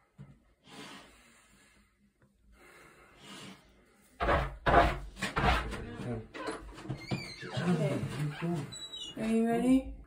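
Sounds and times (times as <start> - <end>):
person breathing deeply: 0.6 - 4.1.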